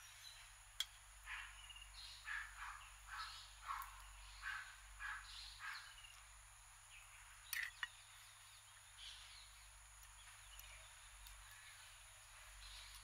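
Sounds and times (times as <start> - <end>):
faint bird calls: 1.2 - 13.0
crow cawing: 2.3 - 6.0.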